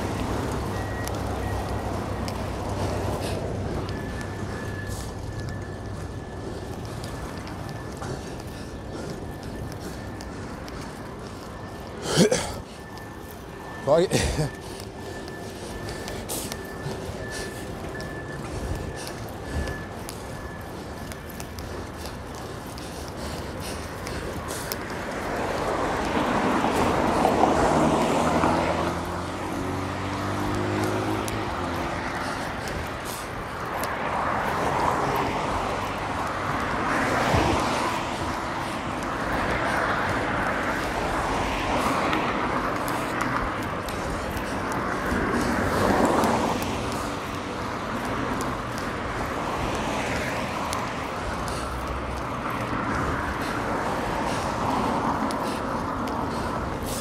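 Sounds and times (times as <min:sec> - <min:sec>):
road traffic: 0:00.0 - 0:57.0
vehicle engine speeding up: 0:25.8 - 0:32.3.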